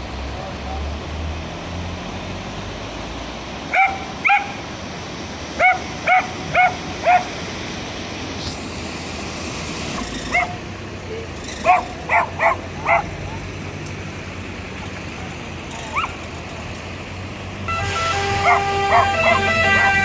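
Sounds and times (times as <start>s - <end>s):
rushing floodwater: 0.0s - 20.0s
dog barking: 3.7s - 4.6s, 5.6s - 7.3s, 10.3s - 10.6s, 11.6s - 13.1s, 15.9s - 16.2s, 18.4s - 19.6s.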